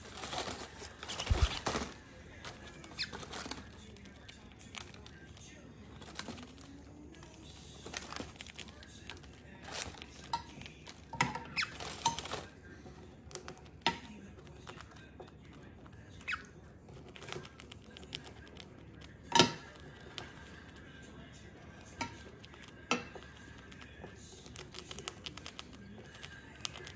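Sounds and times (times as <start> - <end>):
plastic bag crinkling: 0.0 - 5.2.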